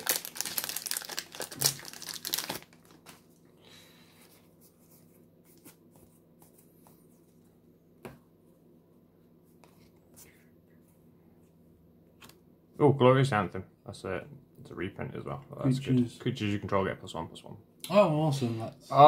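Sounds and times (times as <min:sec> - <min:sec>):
plastic wrapper tearing and crinkling: 0:00.0 - 0:03.3
faint rustles of cards: 0:02.3 - 0:07.7, 0:09.2 - 0:11.6.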